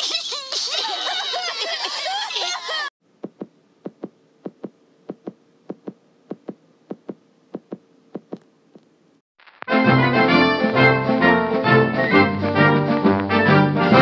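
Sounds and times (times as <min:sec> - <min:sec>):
faint steady hum: 0:03.0 - 0:09.2
soft low thumps in pairs: 0:03.2 - 0:08.4.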